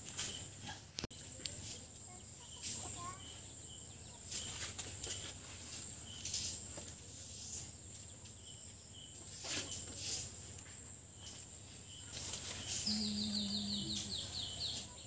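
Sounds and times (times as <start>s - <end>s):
faint bird chirps: 1.2s - 5.3s, 11.2s - 15.0s
high-pitched insect drone: 12.8s - 14.6s.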